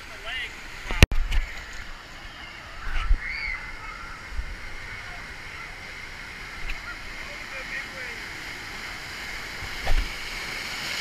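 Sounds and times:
water sloshing: 0.8s - 11.0s
distant shouts of swimmers: 2.3s - 4.3s.

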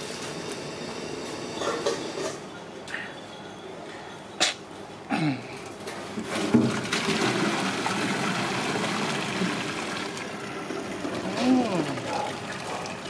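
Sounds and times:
water splashing in metal sink: 6.2s - 13.0s.

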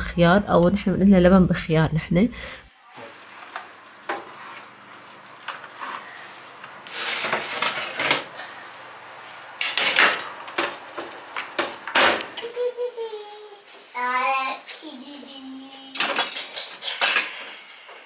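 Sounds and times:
baking tray scraping on oven rack: 5.6s - 8.3s.

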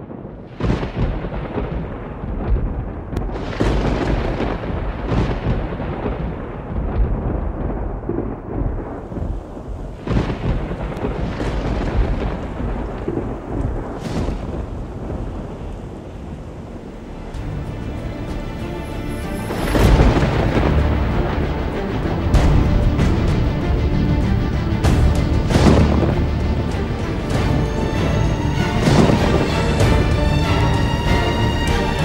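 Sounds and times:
deep rolling thunder: 0.0s - 32.0s
rain hissing: 3.1s - 32.0s.

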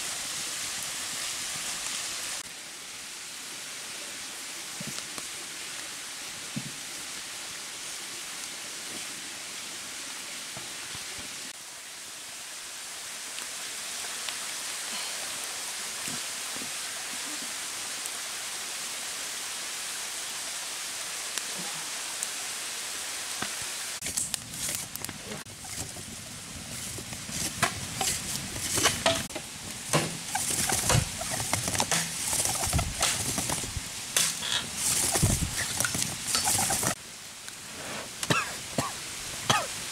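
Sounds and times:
steady rushing hiss: 0.0s - 39.9s
wood fire crackling: 23.3s - 39.9s.

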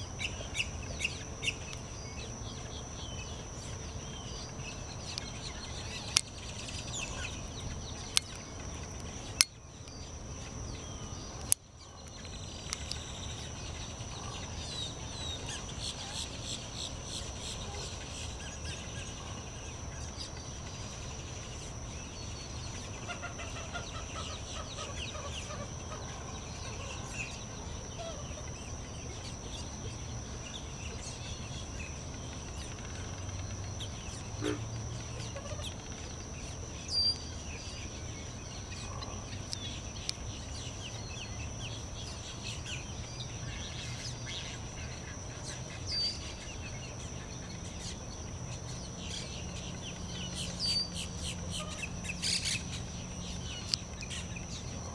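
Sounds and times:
high-pitched insect drone: 0.0s - 54.9s
small bird chirps: 0.2s - 54.9s
marsh birds clucking: 21.6s - 54.9s.

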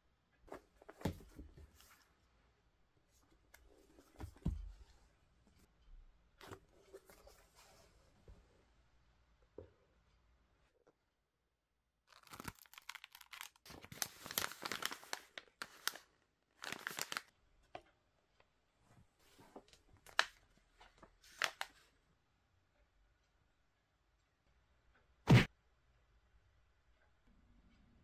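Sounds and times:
sachets crinkling and rustling: 12.1s - 17.3s, 21.2s - 21.8s.

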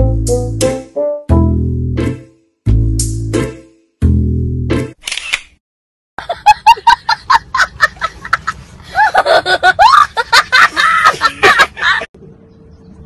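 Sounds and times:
person laughing hard: 6.2s - 12.1s.

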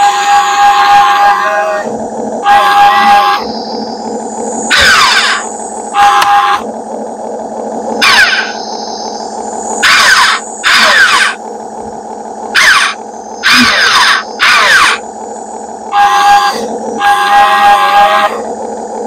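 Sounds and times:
excavator machinery whining: 0.0s - 19.0s
loud rasping bursts: 9.8s - 11.4s, 12.5s - 15.0s.

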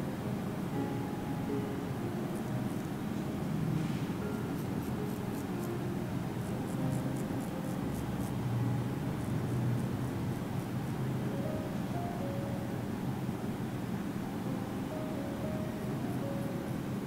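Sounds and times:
steady low hum: 0.0s - 17.0s
razor scraping skin: 4.5s - 5.6s, 6.4s - 8.4s.

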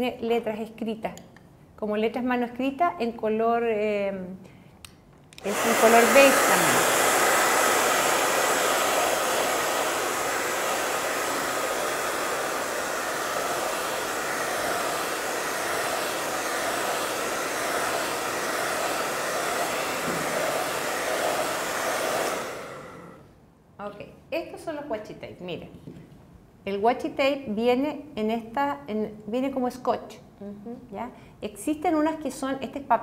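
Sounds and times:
hair dryer running: 5.4s - 23.2s.

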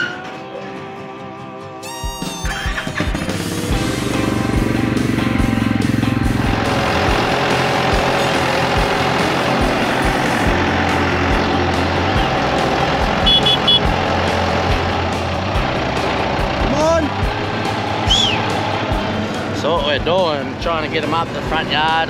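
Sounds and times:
tractor engine running: 2.5s - 22.0s
short high beeps: 13.3s - 13.9s.

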